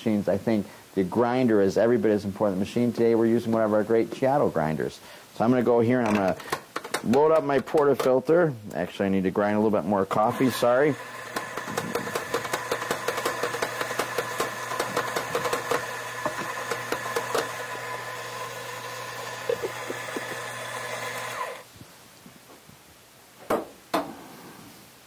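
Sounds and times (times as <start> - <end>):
coffee grinder motor hum: 10.2 - 21.7
coffee beans crackling: 10.4 - 21.6.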